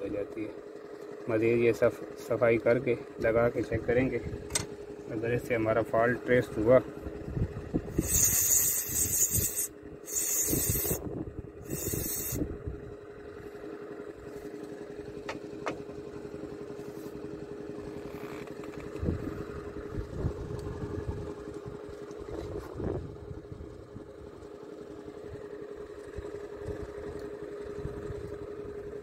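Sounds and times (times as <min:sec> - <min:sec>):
steady mechanical hum: 0:00.0 - 0:29.0
aerosol spray hissing: 0:08.0 - 0:11.0, 0:11.6 - 0:12.4.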